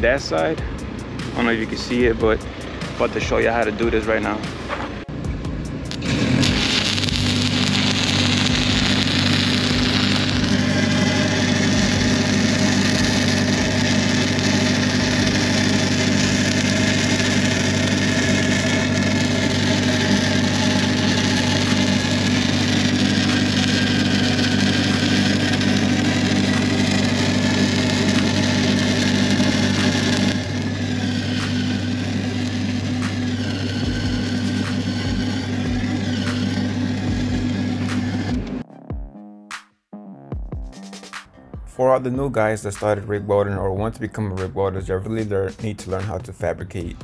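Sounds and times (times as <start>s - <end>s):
welding machine engine hum: 0.0s - 38.6s
welding arc crackling and hissing: 5.9s - 38.6s.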